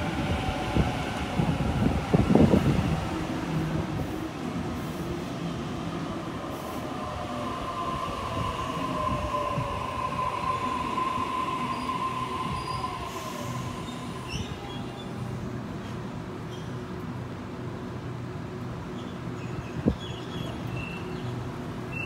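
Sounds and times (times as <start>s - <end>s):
train rumbling: 0.0s - 22.0s
high-pitched brake squeal: 11.2s - 15.1s.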